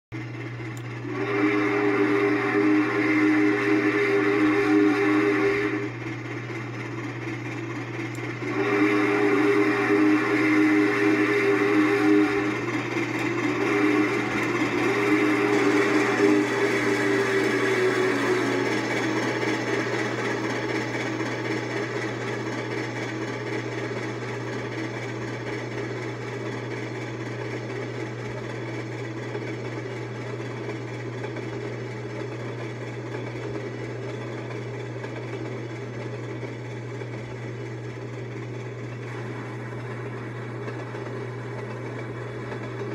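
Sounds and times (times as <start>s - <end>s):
train cars rumbling on rails: 0.2s - 42.9s
steam locomotive hiss: 1.0s - 5.9s, 8.4s - 22.8s.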